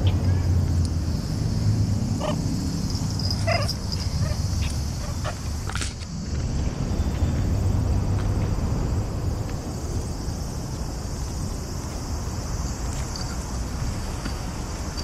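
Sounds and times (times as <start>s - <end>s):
low rumble: 6.1s - 11.7s.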